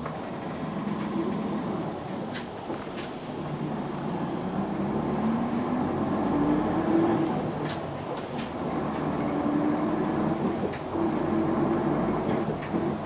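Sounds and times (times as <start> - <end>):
bus engine drone: 0.0 - 13.0
drivetrain whine: 0.0 - 13.0.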